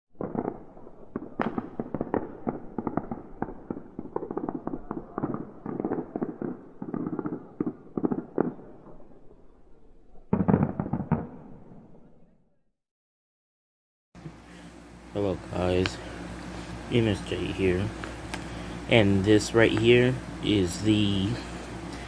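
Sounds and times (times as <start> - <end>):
fireworks bangs and crackles: 0.1 - 9.2, 10.3 - 11.8.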